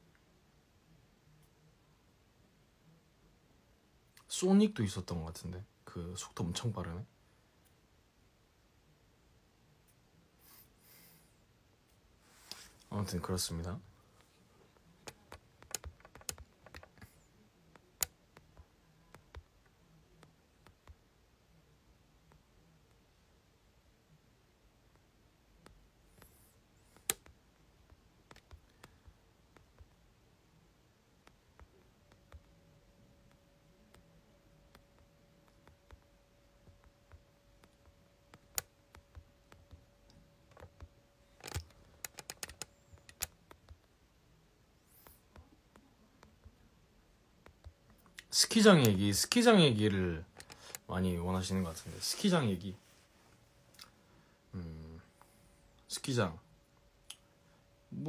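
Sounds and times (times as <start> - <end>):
faint steady hum: 0.0 - 58.0
fingers tapping smartphone: 15.0 - 21.0, 24.9 - 30.1, 31.2 - 32.6, 33.2 - 44.0, 47.4 - 47.9.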